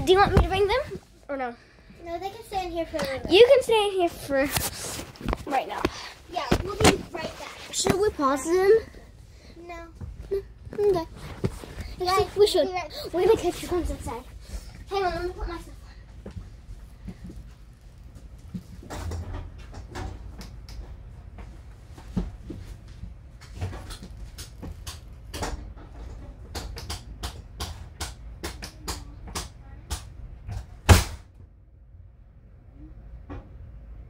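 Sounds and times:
knocks and clatter of handling things: 4.4s - 9.0s, 10.0s - 14.2s, 15.0s - 31.2s.

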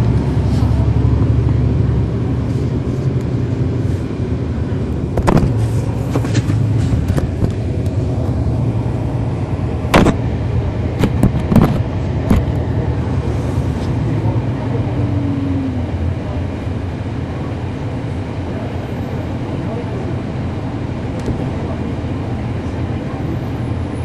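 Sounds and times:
bus engine droning: 0.0s - 24.0s.

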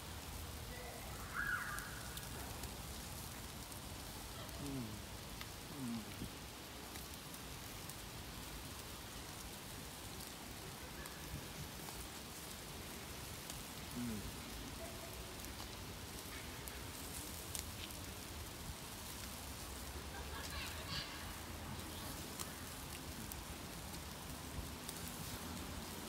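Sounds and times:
kebabs sizzling over charcoal: 0.0s - 26.0s.

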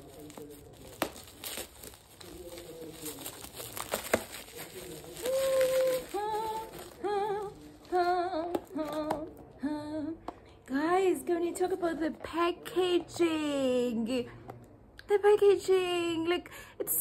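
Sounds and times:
bubble wrap crinkling: 0.0s - 9.5s.

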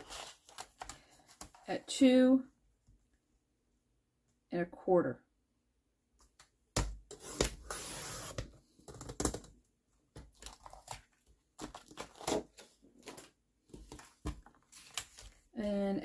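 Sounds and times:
card handling clicks and rustles: 10.2s - 15.5s.

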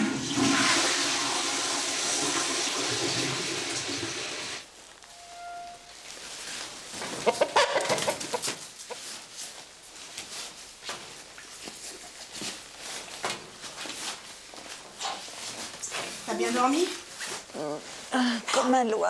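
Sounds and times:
rain jacket rustling: 8.6s - 18.1s.

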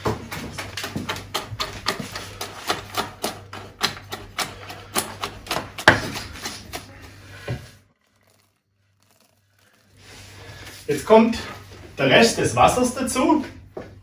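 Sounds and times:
knife chopping on wooden board: 0.4s - 6.9s.

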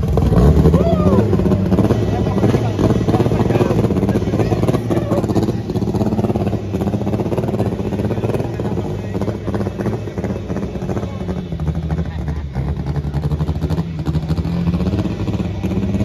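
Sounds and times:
drag car engine idling: 0.0s - 16.0s.

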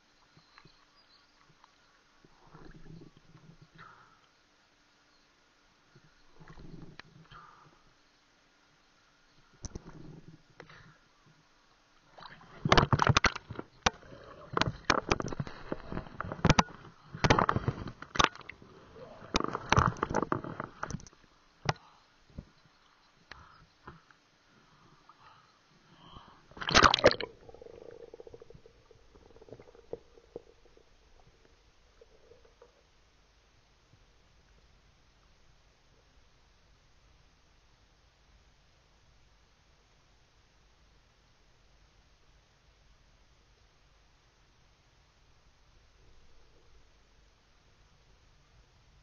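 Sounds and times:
water sloshing and gurgling: 1.4s - 4.0s, 9.7s - 10.9s, 12.0s - 21.3s, 25.9s - 33.0s.

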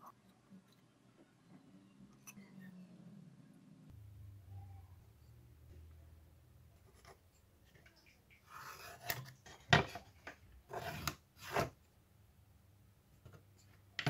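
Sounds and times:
pencil scratching on plywood: 10.7s - 11.8s.

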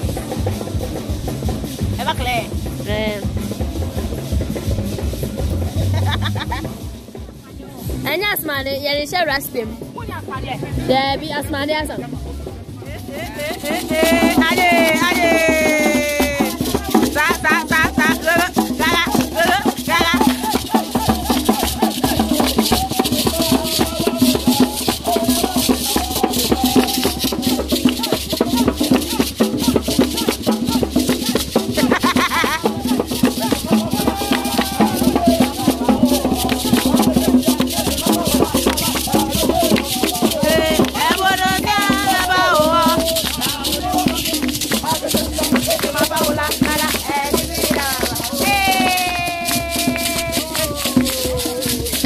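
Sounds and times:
group singing and shouting: 12.6s - 52.0s
gourd rattles shaken: 13.0s - 52.0s.

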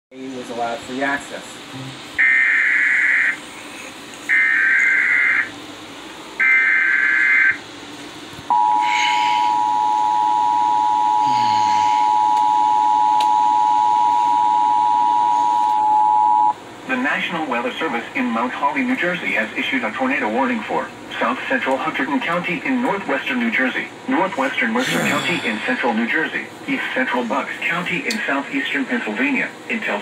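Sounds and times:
two-tone attention signal: 8.5s - 16.6s.

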